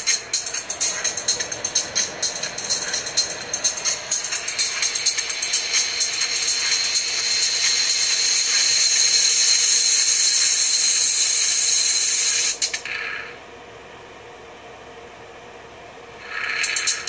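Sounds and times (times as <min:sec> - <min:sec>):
speaker crackling: 0:00.0 - 0:08.5
harsh speaker sizzle: 0:16.2 - 0:17.0.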